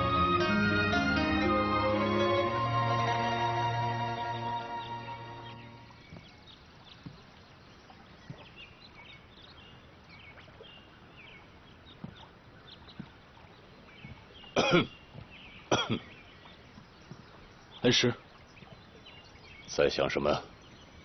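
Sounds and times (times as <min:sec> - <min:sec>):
man coughing: 0:14.6 - 0:14.9, 0:15.7 - 0:16.1.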